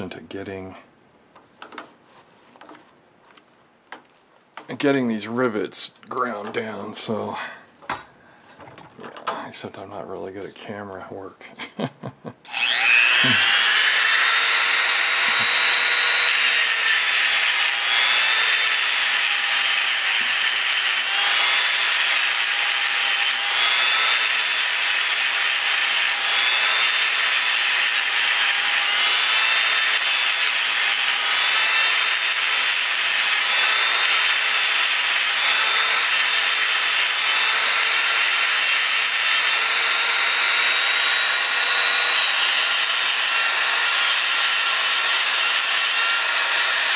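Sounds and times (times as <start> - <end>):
rotary tool grinding metal: 12.5 - 46.9.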